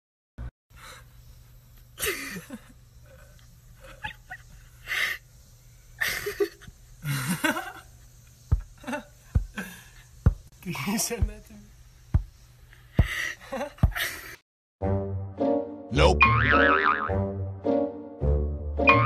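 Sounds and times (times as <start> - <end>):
chimpanzee wheezy laughing: 2.0 - 5.2, 6.0 - 9.8, 13.1 - 14.4.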